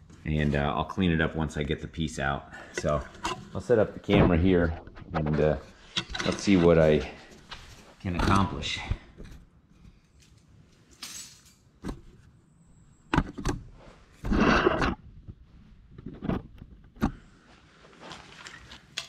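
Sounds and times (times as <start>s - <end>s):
handling knocks and clicks: 2.7s - 12.3s, 13.1s - 17.2s.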